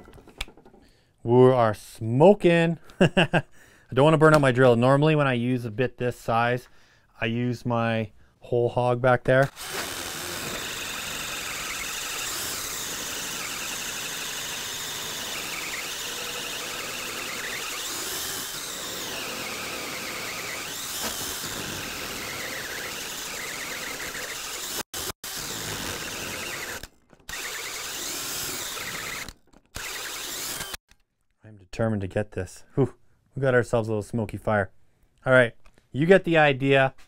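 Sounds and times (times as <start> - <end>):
drill whining under load: 9.5 - 30.8.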